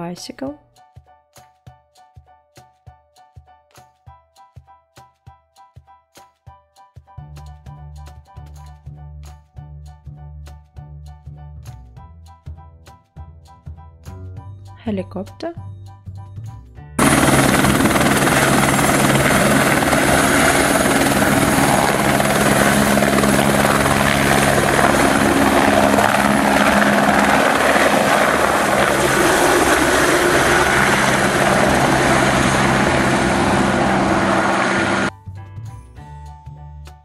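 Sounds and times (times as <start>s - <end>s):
helicopter rotor beat: 17.0s - 35.1s
high turbine whine: 17.0s - 35.1s.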